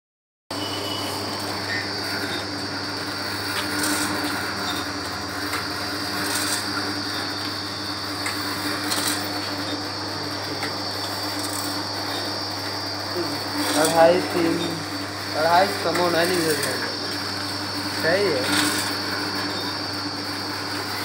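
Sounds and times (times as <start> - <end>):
high machine whine: 0.5 - 21.0
packing machine motor hum: 0.5 - 21.0
mechanical clatter: 3.2 - 9.9, 10.5 - 12.8.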